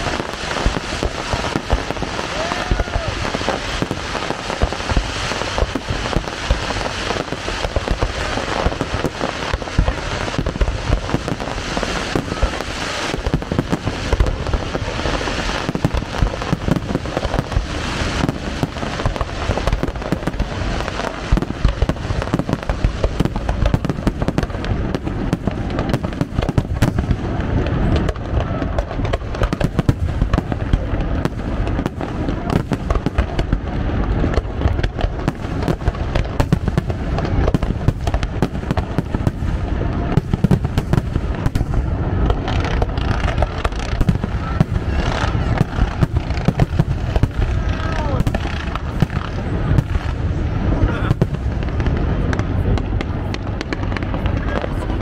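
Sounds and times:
fireworks bursts and booms: 0.0 - 55.0
fireworks hiss and crackle: 0.0 - 55.0.

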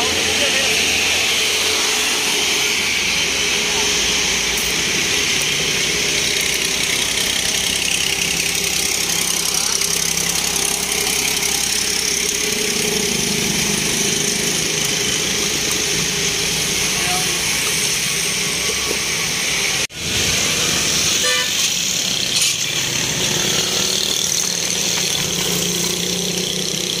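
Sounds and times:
roadside traffic noise: 0.0 - 27.0
vehicle horn toot: 21.2 - 21.7.

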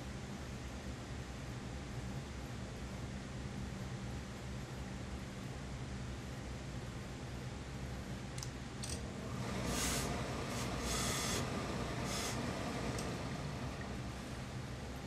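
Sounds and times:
steady low hum: 0.0 - 15.0
steam iron hissing: 9.2 - 14.1.

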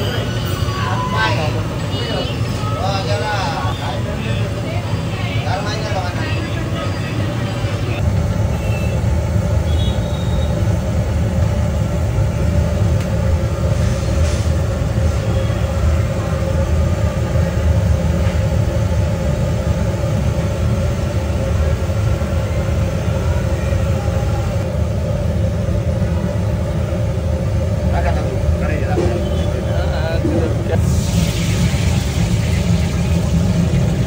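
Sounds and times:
low rumble with hum: 8.0 - 34.0.

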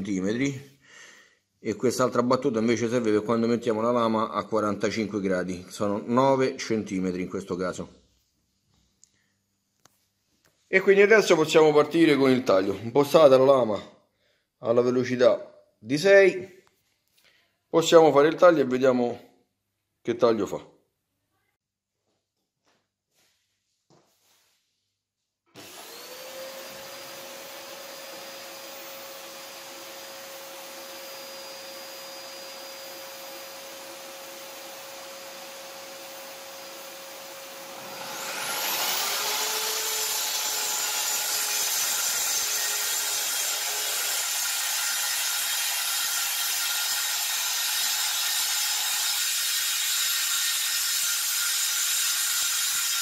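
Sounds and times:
dust extractor running: 25.6 - 45.0
circular saw cutting plywood: 25.6 - 53.0.

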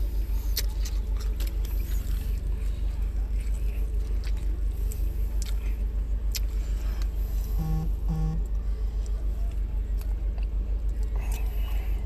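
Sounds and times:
car idling rumble: 0.0 - 12.0
closed-mouth hums: 7.4 - 8.6.

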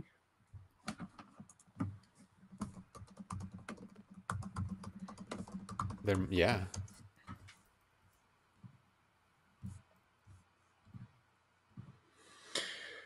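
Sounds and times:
keyboard typing: 0.8 - 7.6.

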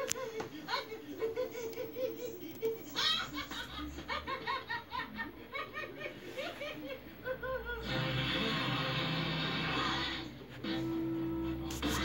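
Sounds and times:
person laughing: 0.0 - 7.8
music: 7.8 - 12.0.

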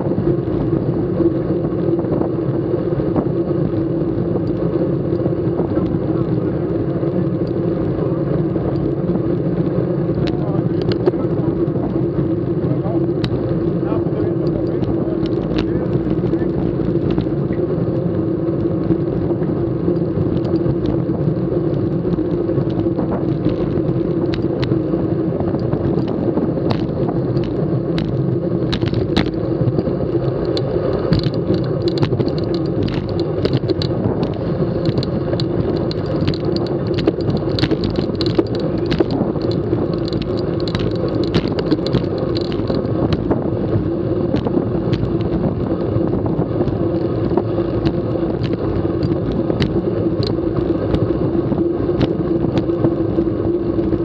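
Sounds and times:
low steady hum: 0.0 - 54.0
wind and road noise: 0.0 - 54.0
scattered clicks and ticks: 0.1 - 54.0.

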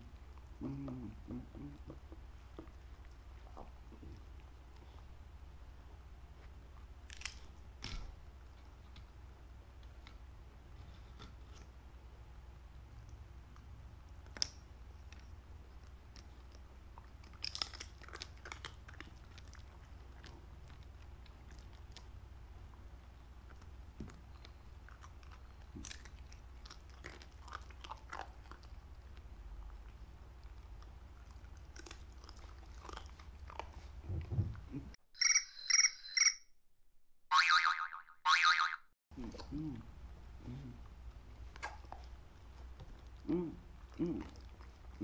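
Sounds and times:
dog crunching crispy chips: 17.2 - 19.8
dog chewing and licking: 24.3 - 34.0
buzzy cartoon sound: 37.3 - 38.8.

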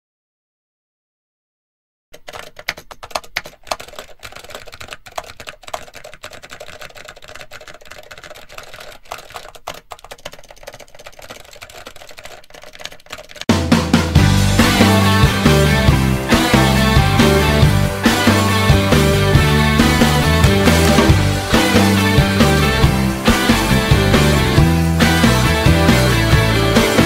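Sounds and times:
laptop keyboard typing: 2.2 - 13.5.

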